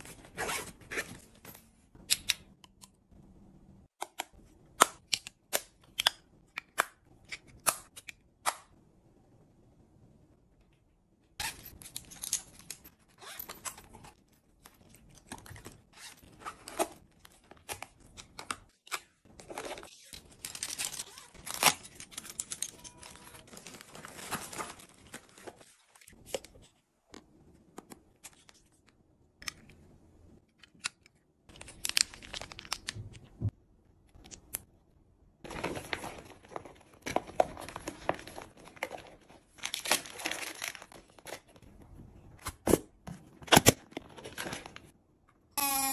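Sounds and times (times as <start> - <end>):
plastic packaging crinkling: 19.5 - 26.0.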